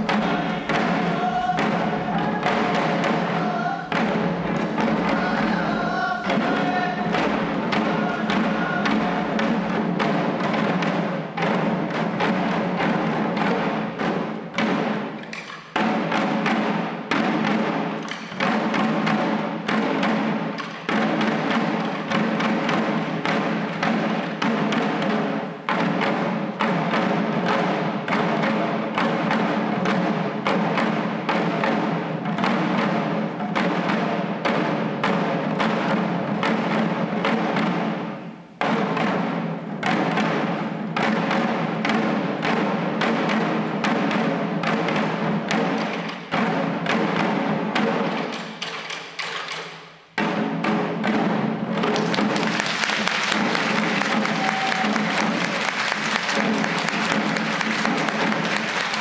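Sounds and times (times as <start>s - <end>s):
voices chanting: 0.0s - 4.0s, 4.9s - 9.4s
small drums beating: 0.0s - 59.0s.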